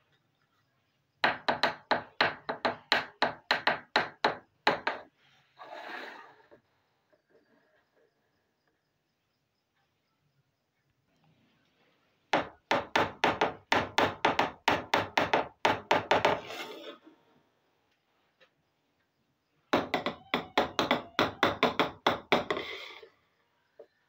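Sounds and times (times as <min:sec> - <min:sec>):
rapid sharp knocks: 0:12.4 - 0:16.4.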